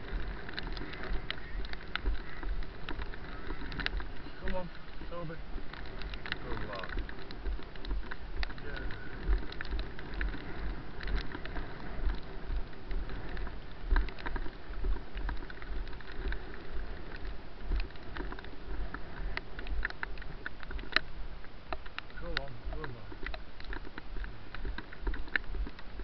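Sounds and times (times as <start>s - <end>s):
rain and wind on microphone: 0.0s - 26.0s
rustling on wet grass: 0.0s - 26.0s.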